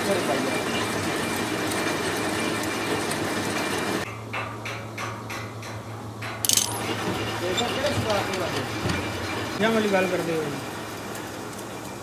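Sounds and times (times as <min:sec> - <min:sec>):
metal lathe running: 0:00.0 - 0:04.0, 0:06.5 - 0:10.9
sharp metallic clink: 0:06.4 - 0:06.9.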